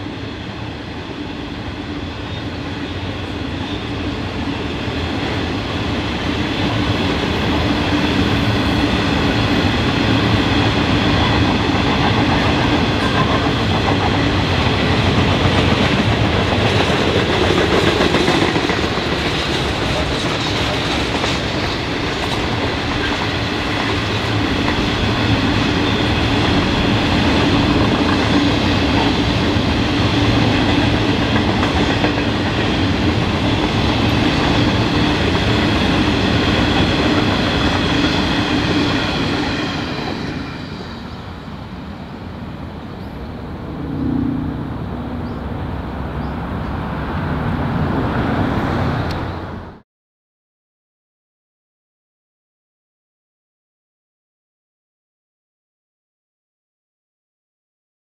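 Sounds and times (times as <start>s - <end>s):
freight train wheels rumbling on rail: 0.0s - 49.8s
constant humming tone: 42.8s - 46.8s.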